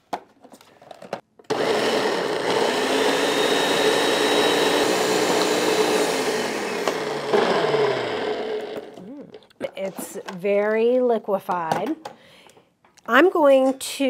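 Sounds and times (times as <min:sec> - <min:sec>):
blender motor running: 0:01.5 - 0:09.0.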